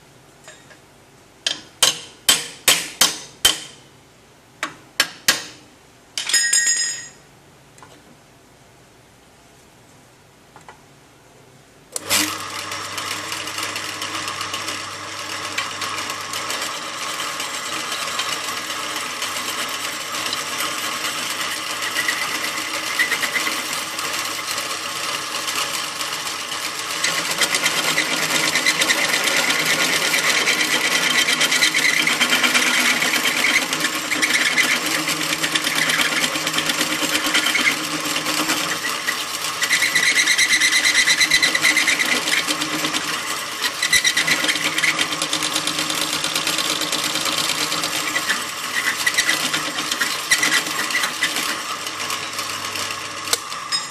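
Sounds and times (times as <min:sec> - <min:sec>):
drill press drilling steel: 0:12.0 - 0:53.9.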